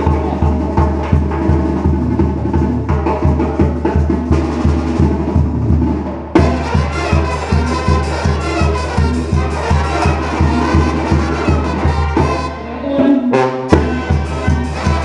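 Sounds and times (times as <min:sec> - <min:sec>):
drums on a steady beat: 0:00.0 - 0:12.6, 0:13.3 - 0:15.0
tuba bass line: 0:00.0 - 0:15.0
brass and clarinets: 0:06.4 - 0:15.0.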